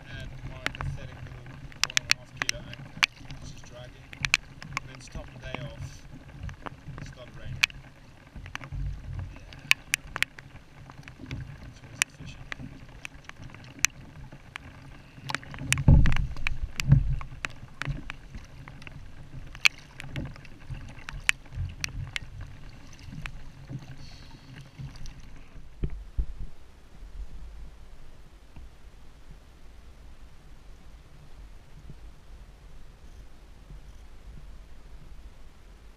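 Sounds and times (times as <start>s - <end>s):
clicks and knocks on hull: 0.0s - 26.6s
water slapping against kayak: 0.0s - 27.4s.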